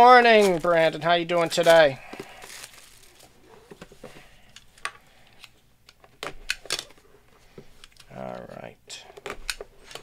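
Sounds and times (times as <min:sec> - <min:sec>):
plastic shrink wrap crinkling: 0:00.0 - 0:03.5.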